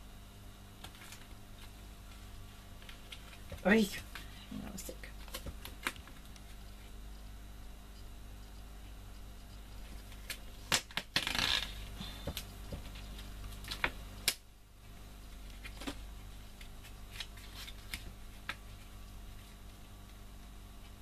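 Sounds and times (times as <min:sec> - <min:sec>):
steady low hum: 0:00.0 - 0:21.0
paper rustle: 0:15.5 - 0:19.6.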